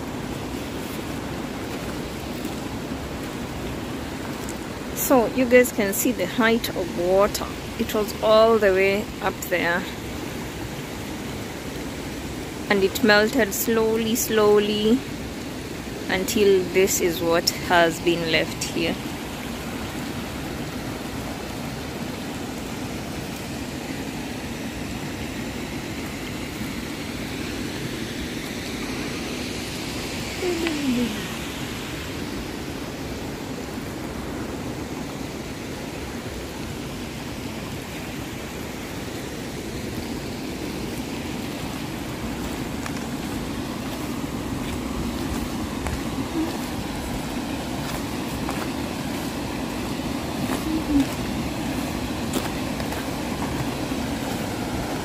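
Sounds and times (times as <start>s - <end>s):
stream water rushing: 0.0s - 55.0s.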